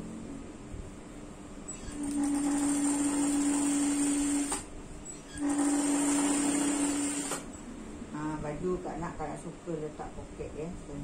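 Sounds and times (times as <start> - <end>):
sewing machine motor humming: 2.0 - 4.6, 5.4 - 7.5.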